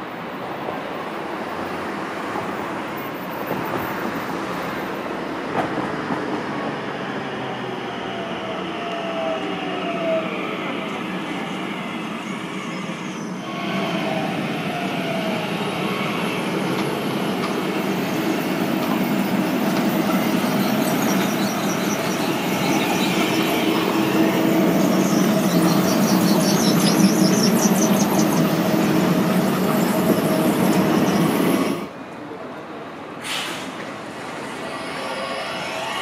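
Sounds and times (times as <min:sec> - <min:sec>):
tram passing: 0:00.0 - 0:36.0
high-pitched squeal: 0:07.8 - 0:31.8, 0:33.9 - 0:36.0.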